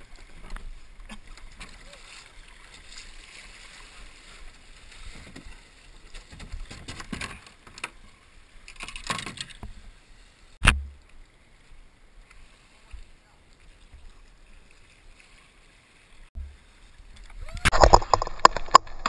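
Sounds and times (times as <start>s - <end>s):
plastic hull scraping on rock: 17.7s - 19.0s.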